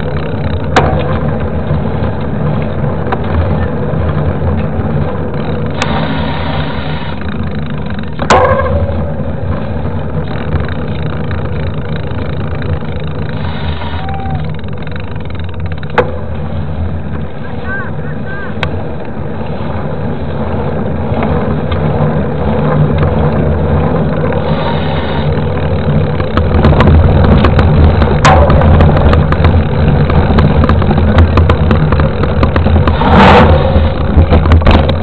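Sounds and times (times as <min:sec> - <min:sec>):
bike tyre rolling on asphalt: 0:00.0 - 0:35.0
sharp knocks: 0:00.7 - 0:01.2, 0:08.2 - 0:09.0, 0:26.2 - 0:35.0
wind buffeting microphone: 0:14.2 - 0:35.0.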